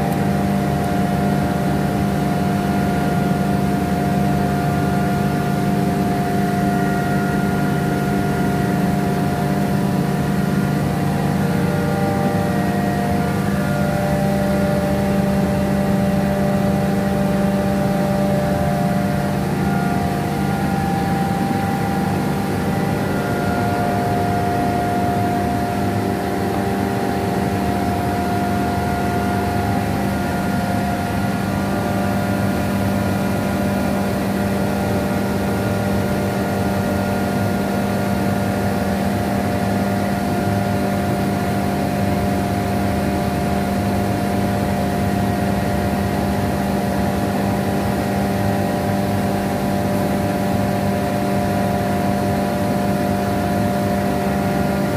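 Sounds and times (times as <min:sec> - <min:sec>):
air compressor running: 0:00.0 - 0:54.9.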